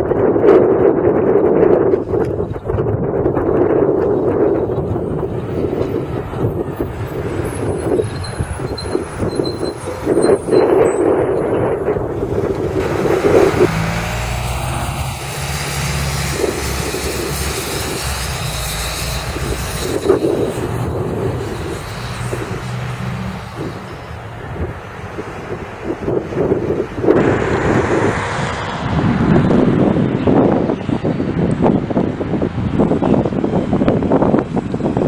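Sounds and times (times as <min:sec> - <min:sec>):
bus driving past: 0:03.5 - 0:31.2.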